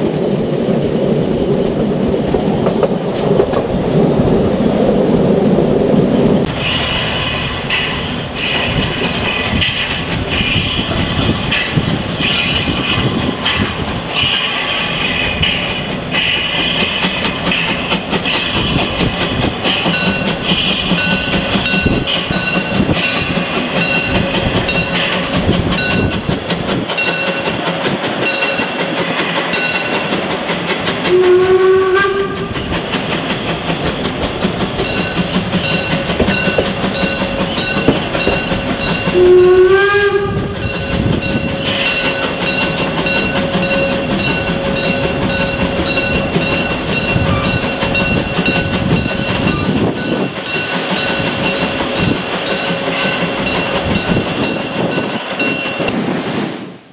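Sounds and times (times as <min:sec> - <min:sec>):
train carriages rumbling on track: 0:00.0 - 0:56.1
steam locomotive whistle: 0:06.5 - 0:23.3, 0:31.0 - 0:32.6, 0:35.6 - 0:47.7.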